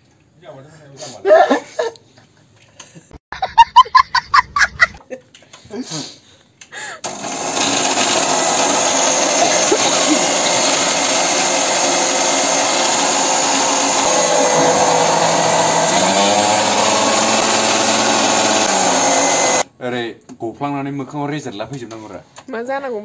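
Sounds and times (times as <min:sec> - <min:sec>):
mixer grinder motor whirring: 0:07.0 - 0:19.7.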